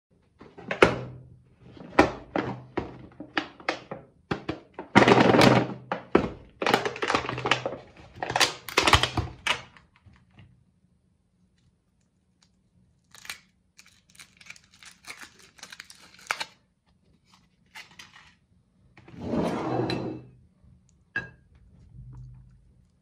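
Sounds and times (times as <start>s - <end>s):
plastic lid clattering and rattling: 0.4s - 9.8s.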